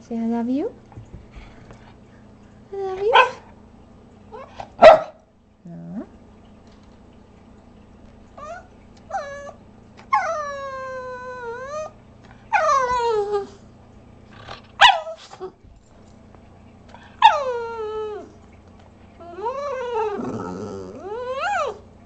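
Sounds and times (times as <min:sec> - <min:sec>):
dog yipping: 0:04.4 - 0:05.2, 0:14.8 - 0:15.2.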